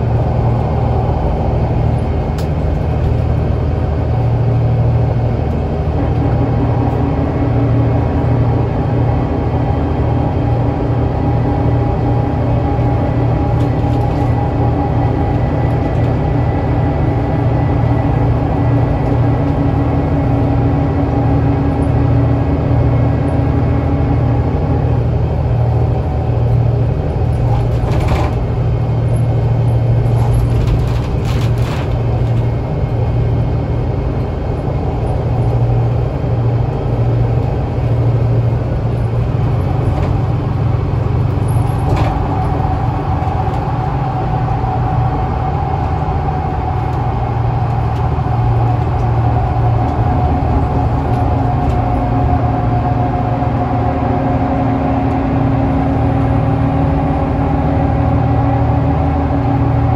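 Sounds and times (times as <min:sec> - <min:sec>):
bus body rattles: 0:00.0 - 0:59.9
bus engine drone: 0:00.0 - 0:59.9
thin steady whine: 0:32.6 - 0:59.9.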